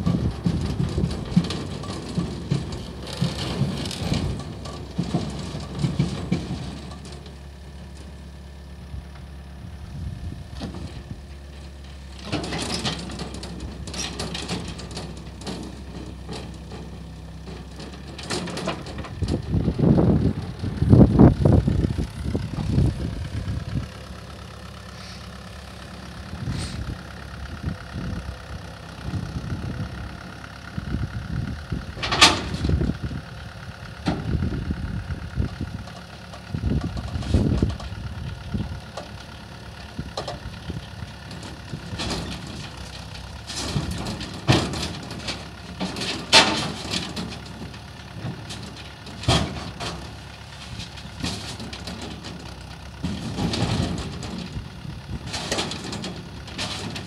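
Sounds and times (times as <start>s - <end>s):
tracks knocking against metal: 0.0s - 7.5s, 40.1s - 57.0s
excavator diesel engine running: 0.0s - 57.0s.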